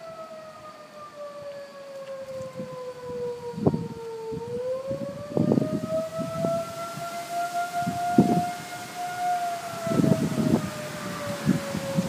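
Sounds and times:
warning siren wailing: 0.0 - 12.0.

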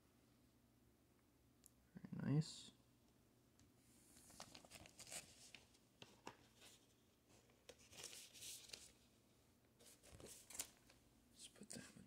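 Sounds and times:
plastic sleeve rustling: 4.1 - 9.0, 9.8 - 11.0.

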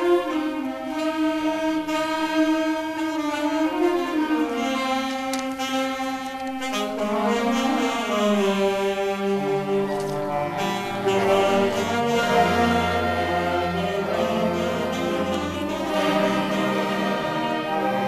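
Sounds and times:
woodwind band playing held chords: 0.0 - 18.0.

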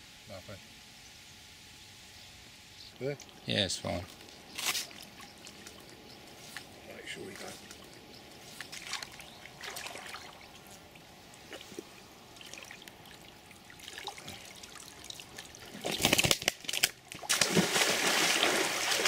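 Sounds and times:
water trickling and dripping: 4.9 - 15.9
fish splashing out of water: 13.8 - 19.0.

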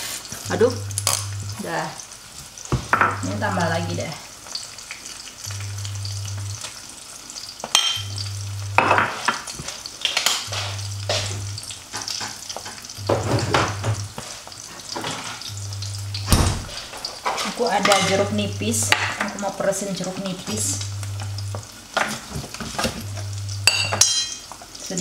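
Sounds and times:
eggs sizzling in a pan: 0.0 - 25.0
low hum: 5.4 - 6.6, 8.0 - 8.9, 10.5 - 11.8, 12.9 - 14.2, 15.4 - 17.0, 20.6 - 21.6, 23.0 - 24.0.

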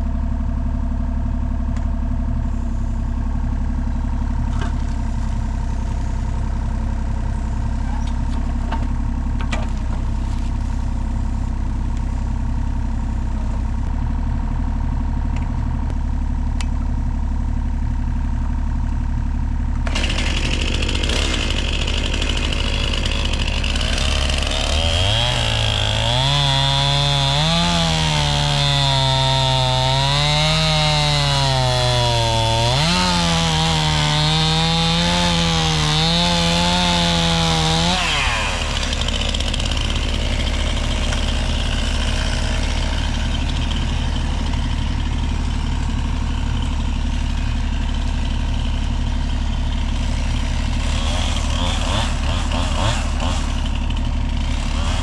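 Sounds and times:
engine idling: 0.0 - 31.2, 37.7 - 55.0
chainsaw cutting wood: 4.4 - 6.6, 19.8 - 55.0.

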